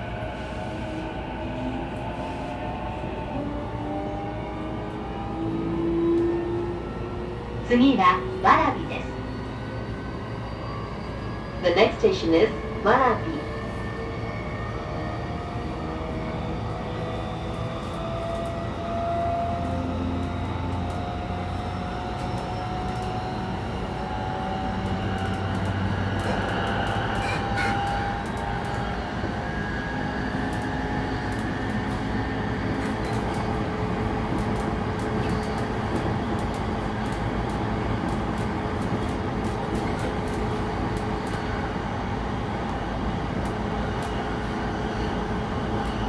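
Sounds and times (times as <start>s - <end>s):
train wheels rumbling on rail: 15.0s - 46.0s.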